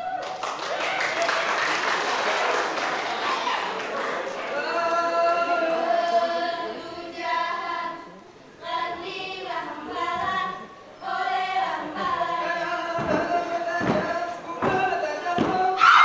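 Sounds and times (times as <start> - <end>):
unaccompanied group singing: 3.8 - 16.0
thumps: 12.0 - 15.8.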